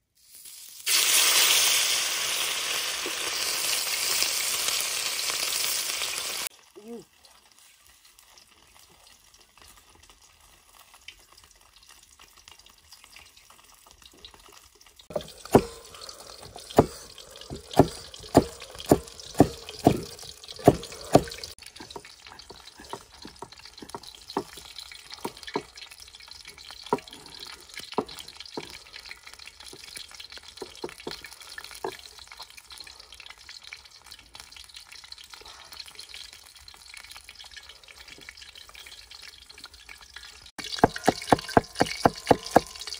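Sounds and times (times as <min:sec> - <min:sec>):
fish sizzling in hot oil: 0:00.0 - 0:42.9
cleaver chopping on wooden block: 0:15.1 - 0:21.5, 0:40.8 - 0:42.9.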